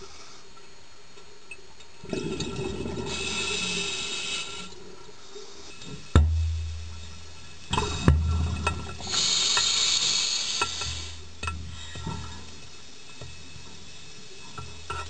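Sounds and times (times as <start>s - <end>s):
diver breathing through regulator: 3.0s - 5.8s, 9.0s - 12.5s
low hum: 6.2s - 9.2s.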